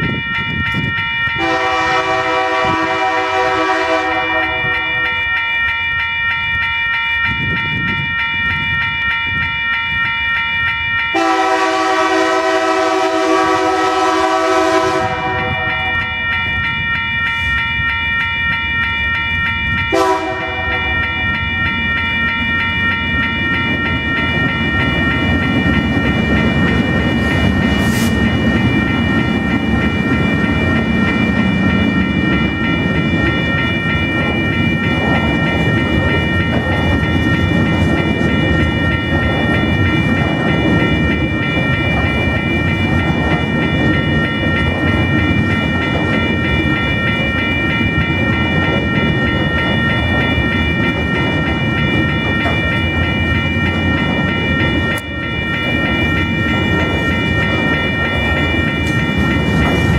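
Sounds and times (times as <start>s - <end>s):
crossing warning bell ringing: 0.0s - 59.9s
diesel locomotives rumbling: 0.0s - 59.9s
train wheel clatter: 0.0s - 59.9s
train horn: 1.4s - 5.1s, 11.2s - 16.2s, 19.9s - 21.0s.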